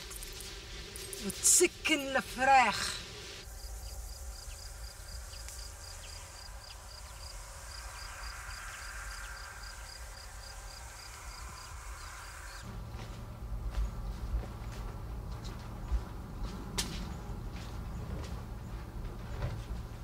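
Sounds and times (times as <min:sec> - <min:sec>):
insect chirping: 0:00.0 - 0:12.7
low outdoor rumble: 0:00.0 - 0:20.0.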